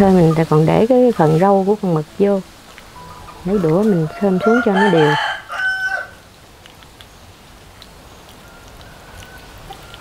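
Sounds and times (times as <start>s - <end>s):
rooster crowing: 3.4s - 6.2s.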